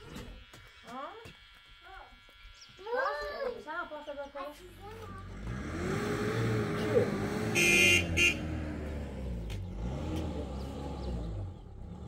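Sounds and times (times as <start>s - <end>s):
engine running low: 4.6s - 12.0s
vehicle horn honking: 7.4s - 8.7s.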